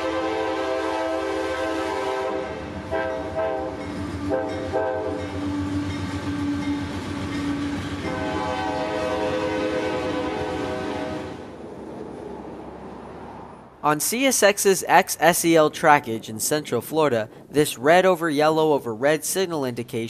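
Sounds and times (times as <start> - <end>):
locomotive air horn blasts: 0.0 - 5.4, 7.5 - 11.4
rumble of passing freight train: 0.0 - 20.0.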